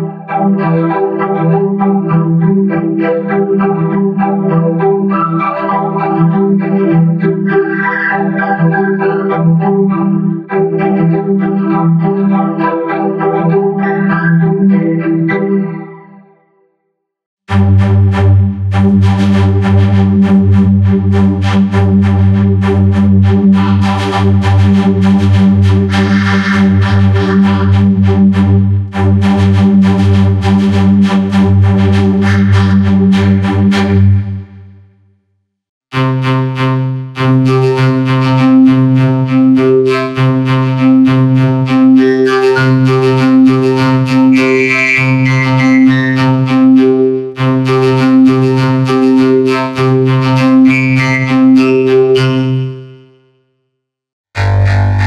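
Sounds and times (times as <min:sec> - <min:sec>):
electronic synthesizer music: 0:54.4 - 0:55.0.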